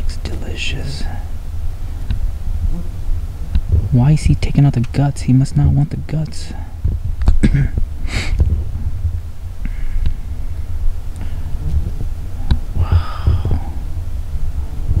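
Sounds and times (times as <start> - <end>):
low steady rumble: 0.0 - 15.0
soft thumps on microphone: 11.7 - 13.7.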